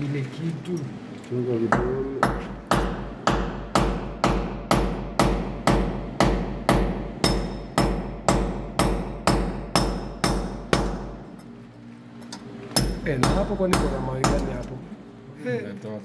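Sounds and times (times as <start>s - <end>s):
hammer striking metal bracket: 1.7s - 11.2s, 12.3s - 14.7s.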